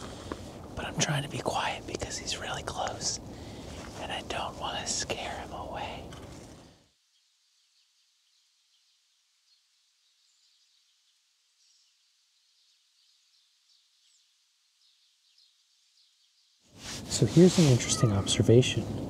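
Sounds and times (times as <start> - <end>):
man whispering: 0.7 - 6.2, 17.0 - 18.9
faint bird chirps: 6.9 - 16.7, 17.6 - 18.6.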